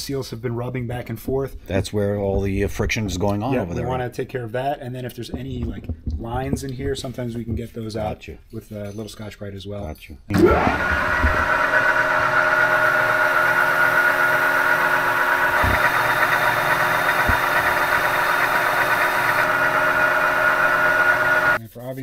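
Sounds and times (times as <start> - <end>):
metal lathe gear whine: 10.3 - 21.6.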